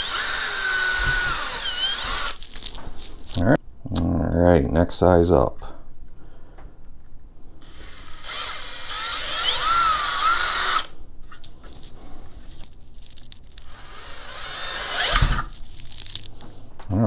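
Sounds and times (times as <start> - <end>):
cordless drill boring plastic: 0.0 - 2.6, 7.6 - 10.9, 13.5 - 16.3.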